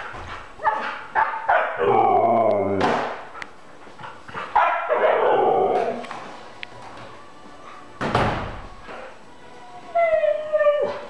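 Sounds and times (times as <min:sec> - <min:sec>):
husky howling call: 0:01.5 - 0:02.9, 0:04.6 - 0:06.1, 0:08.9 - 0:11.0.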